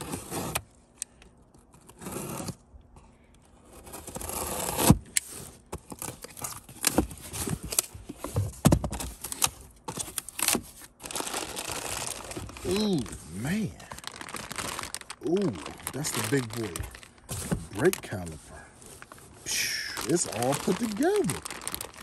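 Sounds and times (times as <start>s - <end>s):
cardboard clicks and knocks: 6.9s - 9.1s
cardboard flaps scraping and tearing: 8.4s - 18.4s, 19.0s - 22.0s.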